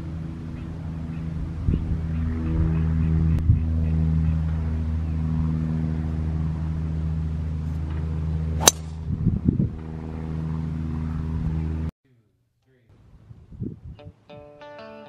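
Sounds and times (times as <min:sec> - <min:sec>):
low motor hum: 0:00.0 - 0:11.9
golf club striking ball: 0:08.6 - 0:09.0.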